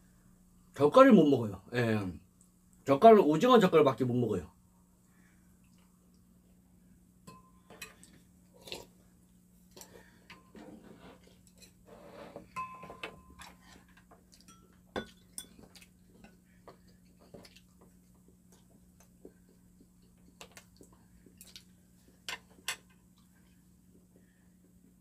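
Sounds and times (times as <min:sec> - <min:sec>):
faint steady hum: 0:00.0 - 0:25.0
chopsticks clinking on ceramic bowls: 0:12.6 - 0:16.4.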